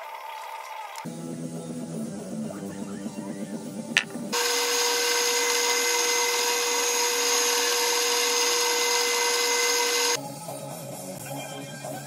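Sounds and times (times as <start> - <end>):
drill press boring wood: 4.0 - 10.2.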